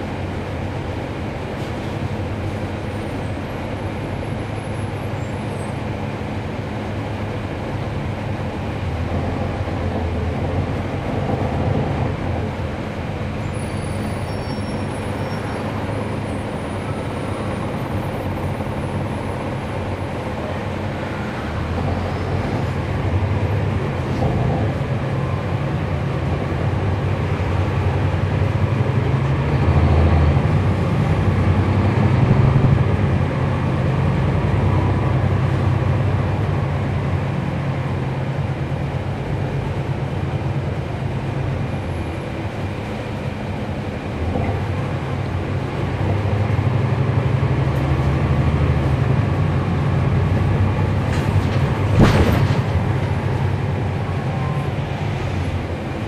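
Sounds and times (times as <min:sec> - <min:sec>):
bus diesel engine: 0:00.0 - 0:56.0
road noise: 0:00.0 - 0:56.0.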